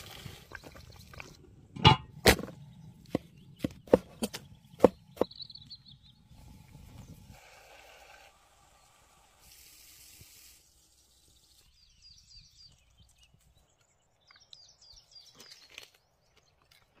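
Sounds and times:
bird chirping: 2.4 - 7.2, 10.9 - 17.0
soft hiss: 6.4 - 11.8.

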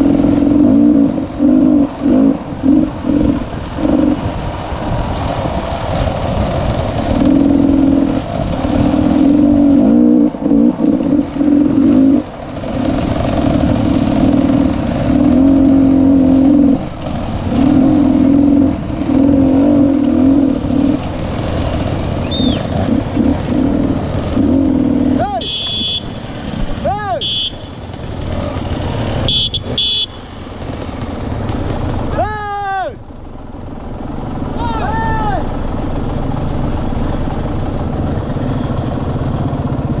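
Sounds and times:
dirt bike engine revving: 0.0 - 4.4, 7.0 - 32.1.

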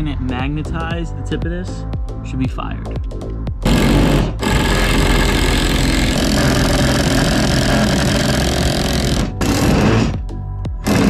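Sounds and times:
impact driver hammering screws: 3.6 - 10.1.

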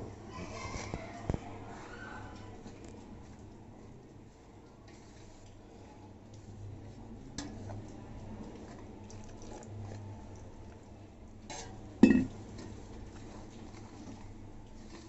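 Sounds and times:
steel bowls clinking together: 11.6 - 12.3.

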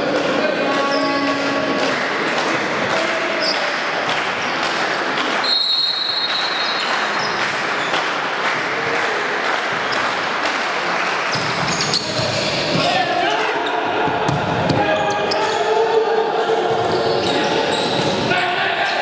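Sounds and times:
crowd noise in sports hall: 0.0 - 19.0
referee's whistle: 5.4 - 6.9
shoe squeaks on court: 11.3 - 12.7, 16.9 - 18.2.

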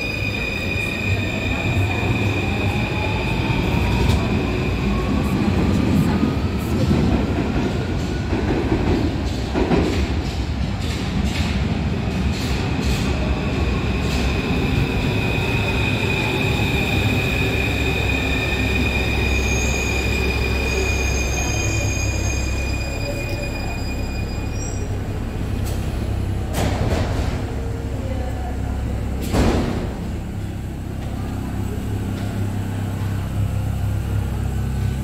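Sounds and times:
train wheels rumbling on rails: 0.0 - 35.0
high brake squeal: 18.2 - 24.9.

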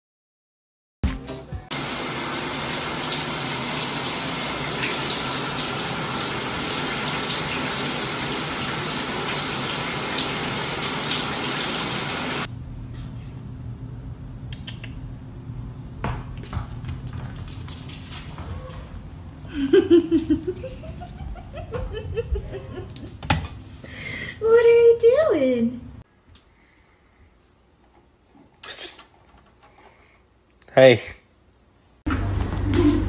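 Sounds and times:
shower water running: 1.7 - 12.5.

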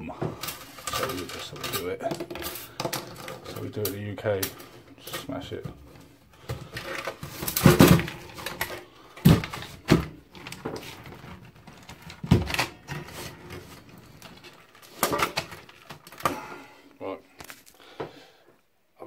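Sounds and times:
metal and plastic parts clunking: 0.1 - 16.7.

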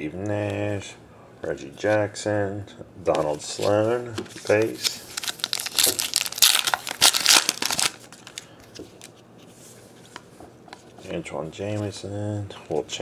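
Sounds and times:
cards being handled: 3.1 - 11.1
foil wrapper crinkling: 4.3 - 9.1.

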